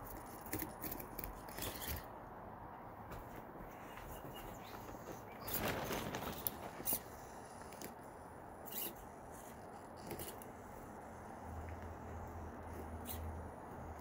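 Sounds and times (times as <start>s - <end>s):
rustling scrape: 3.2s - 7.8s.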